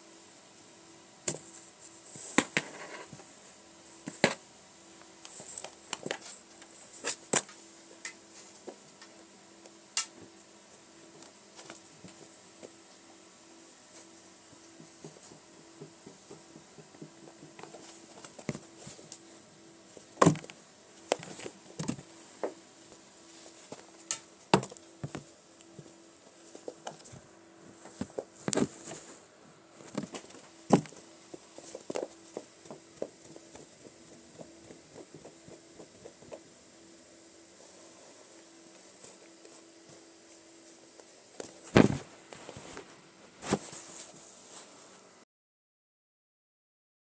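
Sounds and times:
faint steady hum: 0.0 - 45.2
kittens' paws thumping and rustling: 23.5 - 29.2, 29.8 - 36.5, 41.0 - 42.8.

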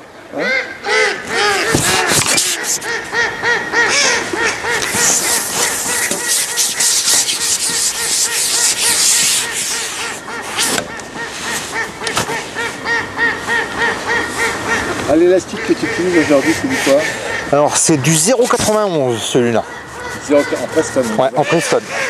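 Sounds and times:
waterfowl honking: 0.4 - 22.0
loud rushing hiss: 4.9 - 10.8.

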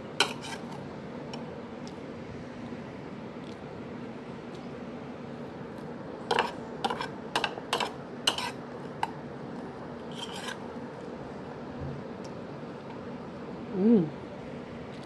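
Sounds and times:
metal utensil scraping ceramic bowl: 0.2 - 0.8, 6.3 - 8.6, 10.1 - 10.6.

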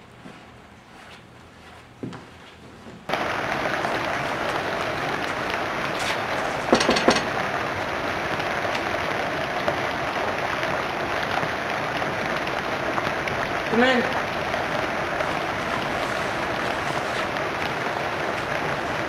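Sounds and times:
background hiss: 3.1 - 19.0
knocks on wooden door: 6.7 - 7.3.

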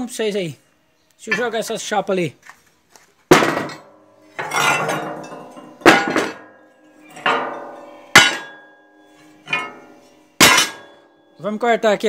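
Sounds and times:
steel plates clanking: 1.3 - 1.7, 3.3 - 11.4.

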